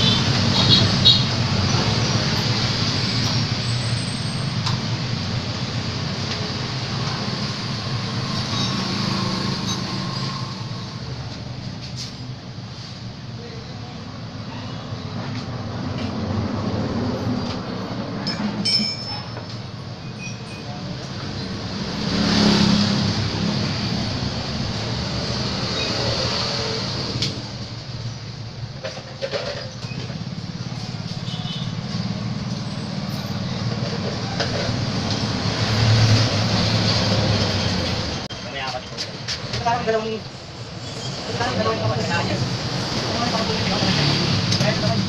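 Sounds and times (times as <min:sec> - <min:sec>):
vehicles passing: 0:00.0 - 0:45.0.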